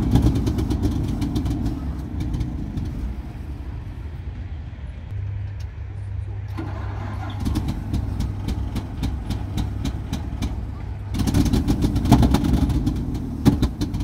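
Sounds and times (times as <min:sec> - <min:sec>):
engine sputtering with sharp pops: 0:00.0 - 0:03.3, 0:06.5 - 0:14.0.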